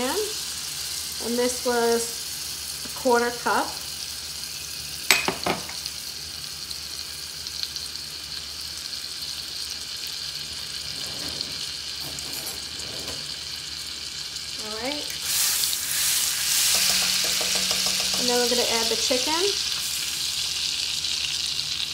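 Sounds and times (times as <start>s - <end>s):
butter and oil sizzling: 0.0s - 21.9s
utensil stirring in pan: 15.1s - 21.4s.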